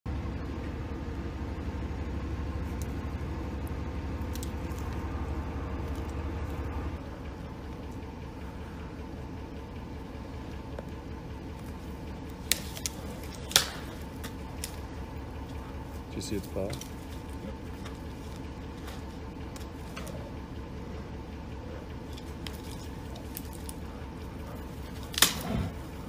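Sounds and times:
faint hum: 0:00.1 - 0:26.0
steady low rumble: 0:00.1 - 0:26.0
sharp clicks: 0:12.1 - 0:18.2.

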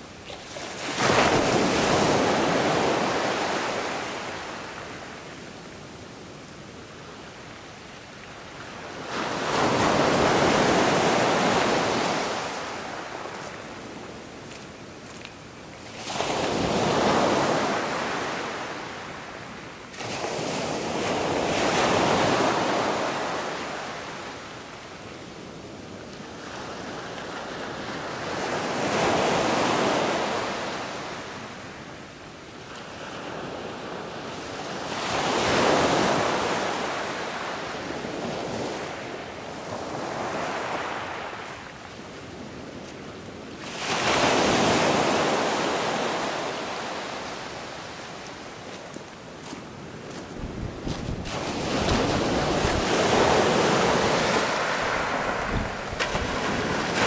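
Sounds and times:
surf waves breaking: 0:50.8 - 0:57.0.

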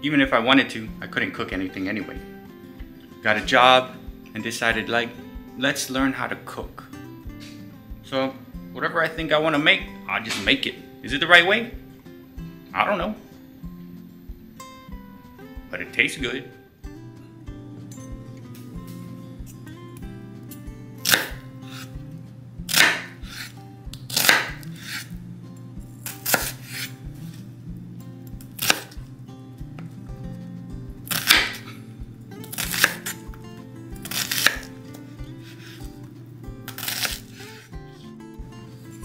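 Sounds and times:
background music with steady beat: 0:00.0 - 0:39.0
knife chopping on cutting board: 0:21.0 - 0:21.9, 0:22.7 - 0:25.1, 0:26.0 - 0:26.9, 0:28.4 - 0:29.0, 0:31.0 - 0:31.8, 0:32.5 - 0:33.2, 0:34.0 - 0:34.8, 0:36.7 - 0:37.6.

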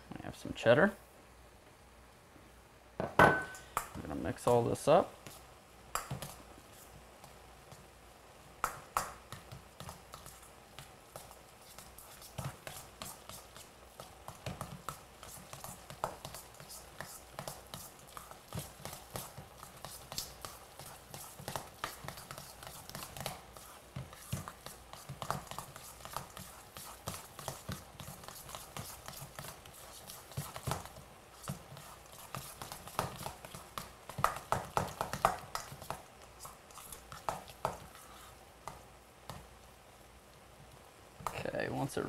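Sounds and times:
wet mixture squishing: 0:09.3 - 0:39.5.

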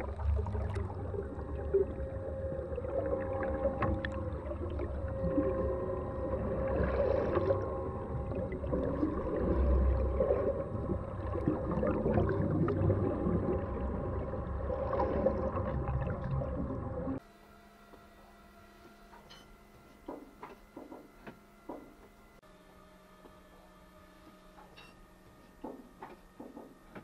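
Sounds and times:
bubbling and gurgling: 0:00.0 - 0:17.2
low underwater rumble: 0:00.0 - 0:17.2
steady humming tones: 0:00.0 - 0:27.0.

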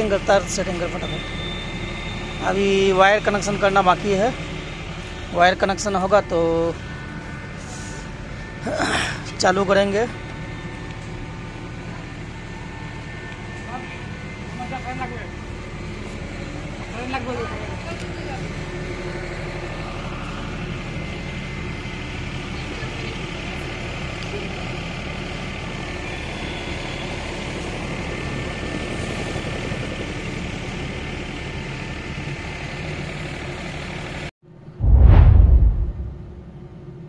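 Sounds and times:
low mechanical rumble: 0:34.7 - 0:37.0
loud deep boom: 0:34.8 - 0:36.7.

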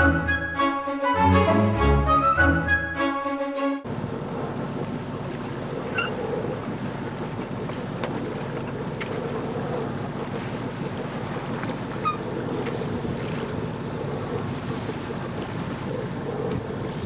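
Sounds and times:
water rushing along hull: 0:00.0 - 0:17.0
wind buffeting microphone: 0:03.9 - 0:17.0
faint squeak: 0:05.9 - 0:06.2.

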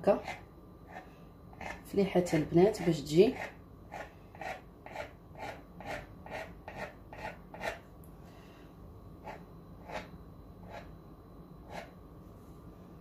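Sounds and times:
knife scraping dough: 0:00.0 - 0:07.9, 0:09.2 - 0:11.0, 0:11.6 - 0:12.0.

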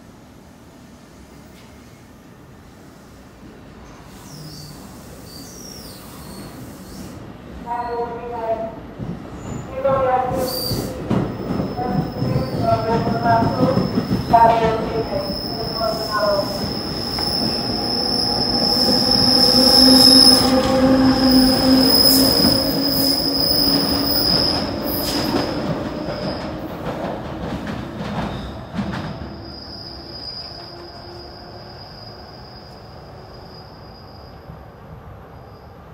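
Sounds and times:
low train hum: 0:00.0 - 0:35.9
train wheel squeal: 0:03.8 - 0:07.2, 0:10.4 - 0:26.6, 0:28.2 - 0:35.9.

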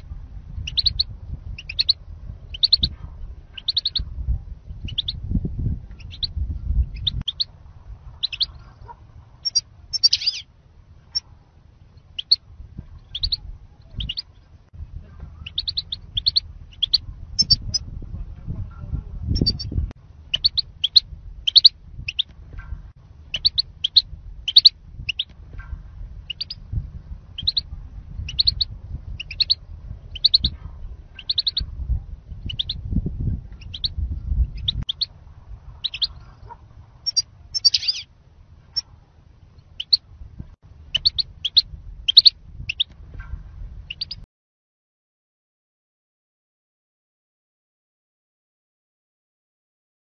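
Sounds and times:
wind rumble on microphone: 0:00.0 - 0:44.3
goldfinches chirping: 0:00.6 - 0:02.9, 0:03.6 - 0:04.0, 0:08.2 - 0:08.7, 0:09.4 - 0:10.5, 0:12.0 - 0:12.4, 0:13.0 - 0:14.5, 0:15.4 - 0:17.8, 0:20.3 - 0:22.3, 0:23.3 - 0:25.3, 0:26.3 - 0:26.6, 0:27.4 - 0:30.6, 0:31.2 - 0:31.6, 0:32.4 - 0:32.8, 0:33.6 - 0:35.1, 0:35.8 - 0:38.1, 0:39.6 - 0:40.0, 0:40.9 - 0:42.9, 0:43.9 - 0:44.2.

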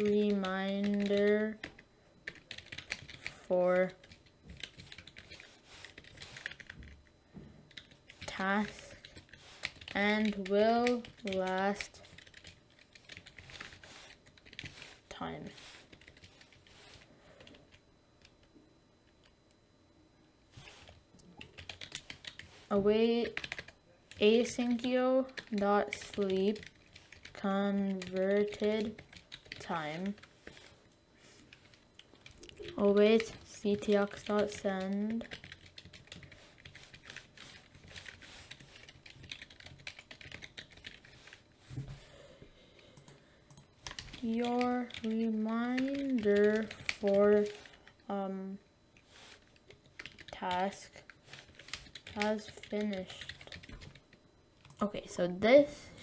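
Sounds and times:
computer keyboard typing: 0:00.0 - 0:07.0, 0:07.7 - 0:18.4, 0:20.6 - 0:30.7, 0:31.5 - 0:41.4, 0:43.0 - 0:48.2, 0:49.0 - 0:54.9.

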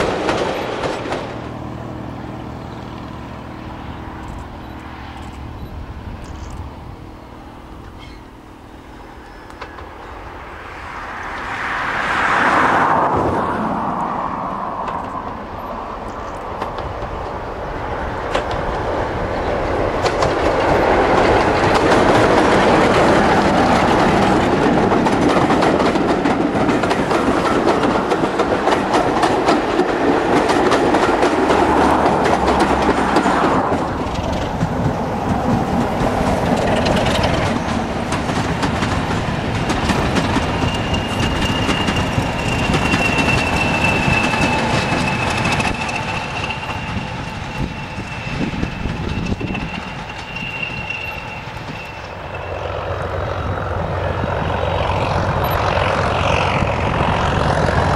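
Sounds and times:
wheels clicking over rails: 0:00.0 - 0:01.6, 0:14.7 - 0:57.9
diesel locomotive engine: 0:00.0 - 0:57.9.

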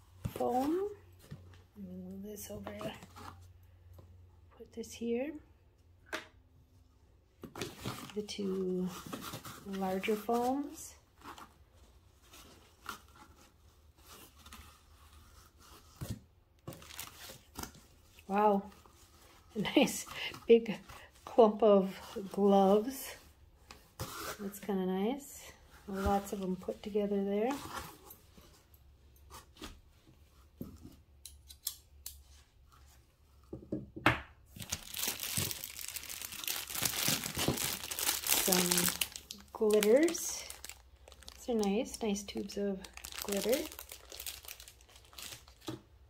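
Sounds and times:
plastic crackle: 0:16.6 - 0:17.6, 0:34.5 - 0:45.9
plastic packaging rustling: 0:16.6 - 0:18.3, 0:34.5 - 0:46.0
plastic wrapping crinkling: 0:16.7 - 0:18.3, 0:34.5 - 0:45.9
hands rummaging in cardboard box: 0:34.6 - 0:41.9, 0:42.9 - 0:45.7.

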